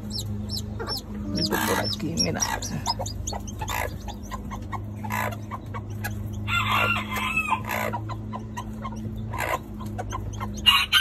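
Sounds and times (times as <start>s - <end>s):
chicks peeping: 0.0s - 11.0s
chicken calling: 0.5s - 5.4s.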